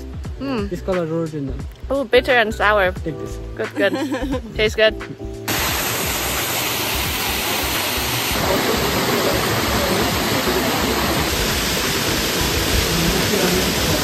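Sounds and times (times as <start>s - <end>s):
waterfall rushing: 5.5s - 14.0s.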